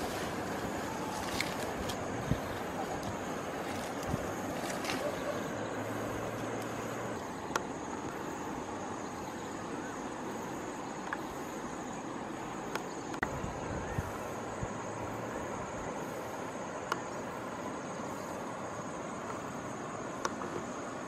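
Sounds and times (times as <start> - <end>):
outdoor rustling noise: 0.0 - 14.8.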